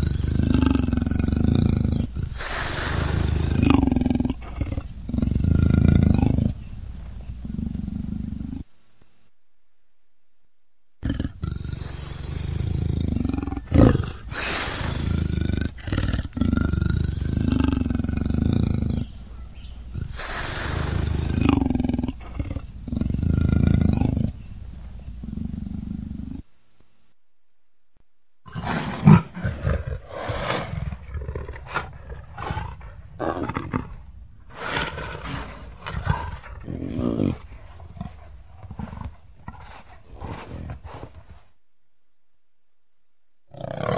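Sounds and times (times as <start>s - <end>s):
big cat roaring and snarling: 0.0s - 6.6s, 11.0s - 19.2s, 19.9s - 24.4s, 28.5s - 41.4s, 43.5s - 43.9s.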